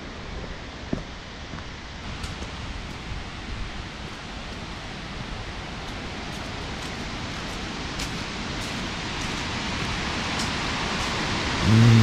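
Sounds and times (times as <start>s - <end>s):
waterfall rushing: 4.3s - 12.0s.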